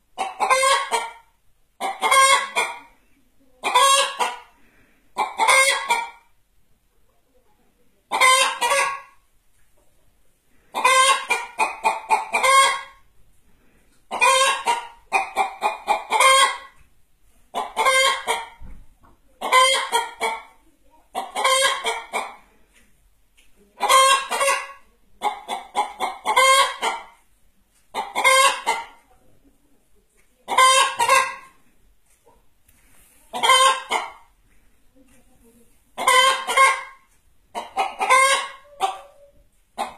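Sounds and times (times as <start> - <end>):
hen cackling: 0.2 - 2.9, 3.6 - 4.5, 5.2 - 6.3, 8.1 - 9.2, 10.7 - 13.0, 14.1 - 16.8, 17.6 - 18.6, 19.4 - 20.5, 21.1 - 22.4, 23.8 - 27.2, 28.0 - 29.0, 30.5 - 31.6, 33.3 - 34.3, 36.0 - 39.9.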